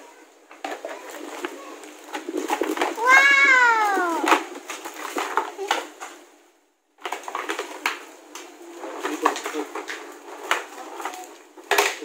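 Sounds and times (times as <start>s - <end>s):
child's voice: 0.0s - 1.9s, 3.0s - 4.4s
plastic toy pieces clattering: 0.6s - 6.2s, 7.0s - 8.1s, 8.8s - 12.0s.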